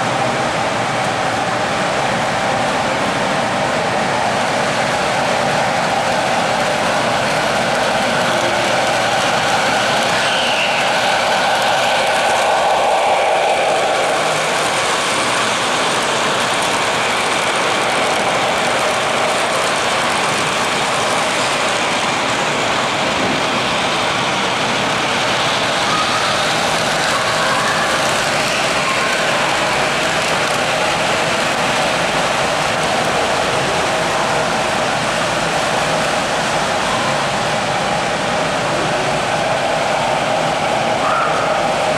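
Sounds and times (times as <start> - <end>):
model trains rolling: 0.0 - 41.9.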